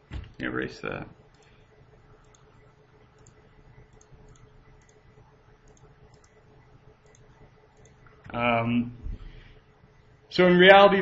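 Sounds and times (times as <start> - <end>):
faint electrical hum: 0.0 - 11.0
faint mouse clicks: 5.6 - 6.4, 7.0 - 8.2.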